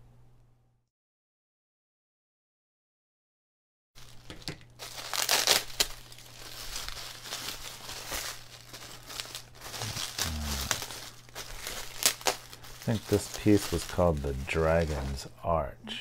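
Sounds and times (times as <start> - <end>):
bubble wrap crinkling: 4.0 - 15.4.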